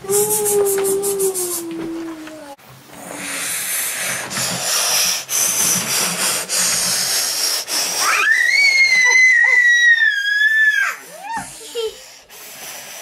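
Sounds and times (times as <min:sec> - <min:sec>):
child imitating steam train chuffs: 0:00.0 - 0:01.7, 0:10.8 - 0:12.2.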